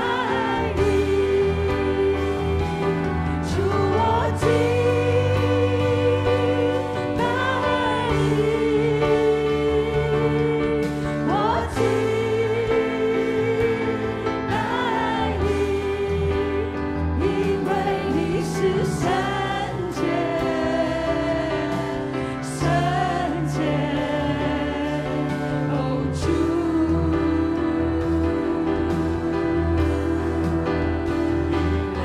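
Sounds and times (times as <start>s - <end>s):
keyboard chords: 0.0s - 32.0s
woman singing: 0.0s - 32.0s.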